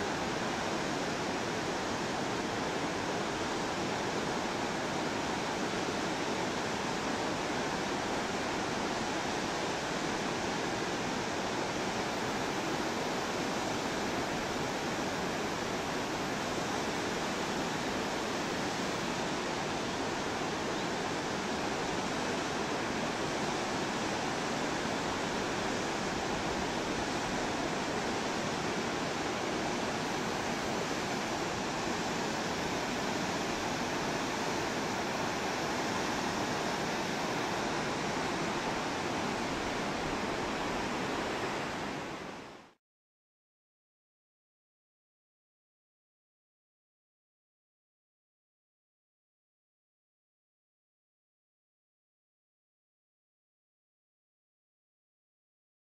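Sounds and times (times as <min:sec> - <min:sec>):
river rushing over boulders: 0:00.0 - 0:42.8.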